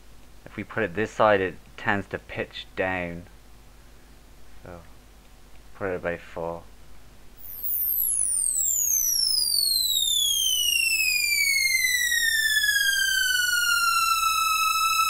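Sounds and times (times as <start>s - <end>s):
synth strings note sweeping down: 9.9s - 15.0s.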